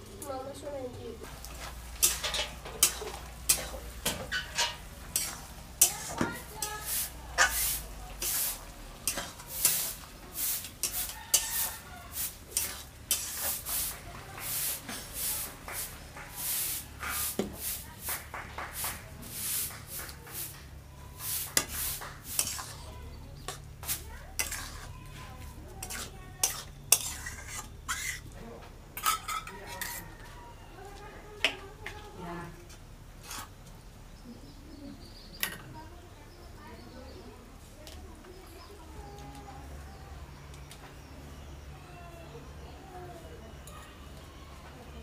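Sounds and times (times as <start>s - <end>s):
spatula scraping a pan: 1.4s - 17.8s, 21.2s - 28.4s, 29.0s - 30.2s, 33.2s - 33.6s
spatula clinking on a bowl: 2.0s - 7.6s, 9.0s - 9.9s, 10.8s - 11.9s, 12.5s - 13.6s, 24.3s - 24.9s, 25.8s - 28.3s.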